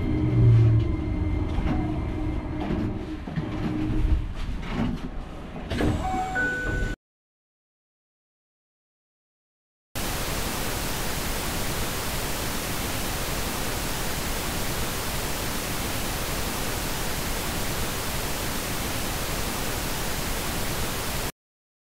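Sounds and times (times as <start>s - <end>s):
static hiss: 10.0s - 21.3s.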